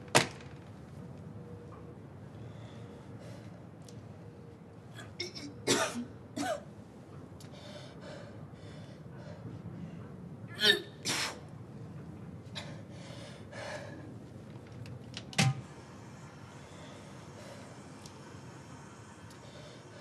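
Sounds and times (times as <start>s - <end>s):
heavy breathing: 12.5s - 14.4s, 16.0s - 20.0s.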